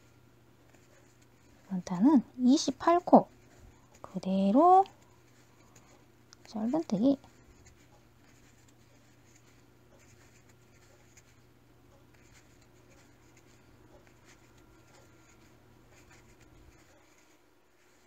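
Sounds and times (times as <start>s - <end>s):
crochet hook scratching yarn: 0.0s - 18.0s
low steady hum: 0.0s - 18.0s.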